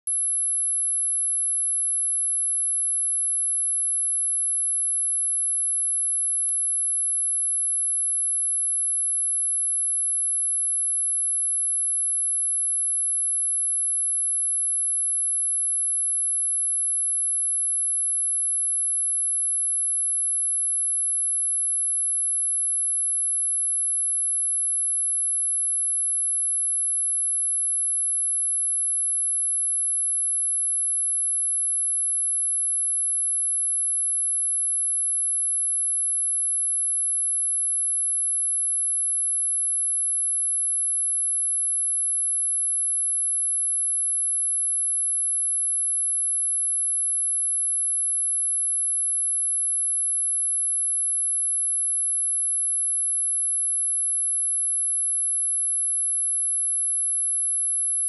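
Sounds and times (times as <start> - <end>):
high-pitched sine test tone: 0.0 - 58.0.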